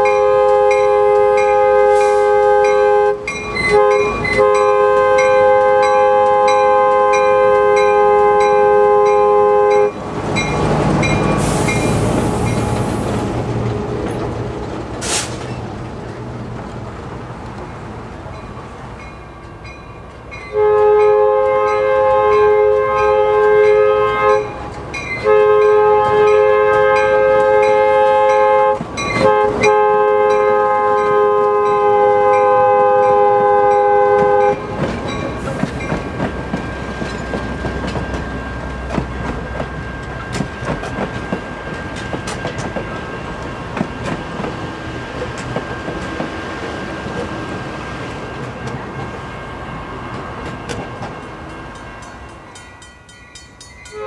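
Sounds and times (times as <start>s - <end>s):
locomotive air horn blasts: 0.0s - 10.0s, 20.5s - 24.6s, 25.2s - 34.8s
rumbling train: 0.0s - 54.0s.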